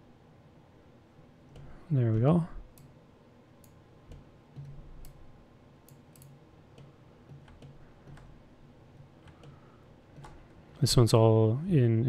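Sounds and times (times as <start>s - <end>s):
low room noise: 0.0s - 12.0s
computer mouse clicks: 3.6s - 5.2s, 5.8s - 8.4s, 9.2s - 9.6s.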